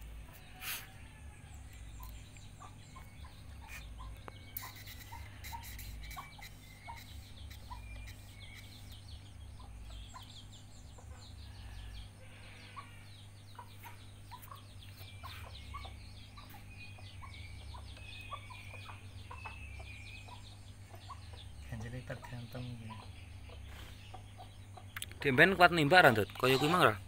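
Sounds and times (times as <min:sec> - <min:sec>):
chickens clucking: 0:00.0 - 0:27.0
steady low hum: 0:00.0 - 0:27.0
high chirps: 0:02.0 - 0:10.6.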